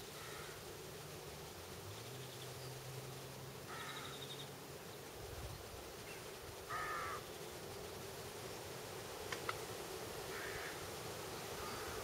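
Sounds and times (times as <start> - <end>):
crow cawing: 0.2 - 0.6, 3.7 - 4.2, 6.7 - 7.2, 10.3 - 10.8, 11.6 - 12.0.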